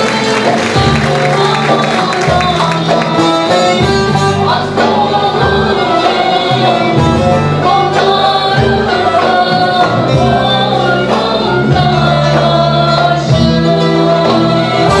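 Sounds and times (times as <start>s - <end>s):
lute and acoustic guitars: 0.0s - 15.0s
steady bass line: 0.0s - 15.0s
woman singing folk song: 0.0s - 15.0s.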